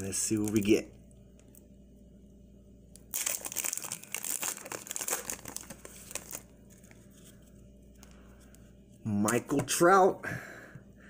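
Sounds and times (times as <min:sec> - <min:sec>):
plastic wrapper crinkling: 0:03.0 - 0:07.4
cards rustling: 0:03.2 - 0:07.6.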